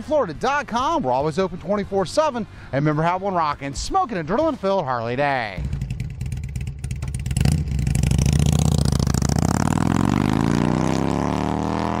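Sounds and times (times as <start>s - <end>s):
motorcycle engine revving: 5.6s - 12.0s.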